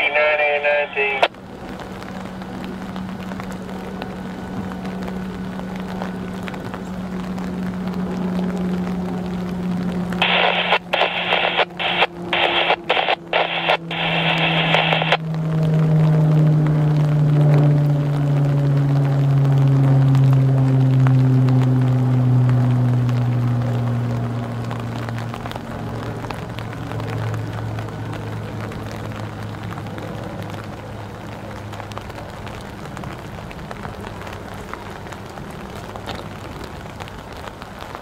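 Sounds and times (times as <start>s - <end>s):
choppy radio transmission: 0.0s - 1.3s, 10.2s - 15.2s
diesel locomotive engine droning: 0.0s - 38.0s.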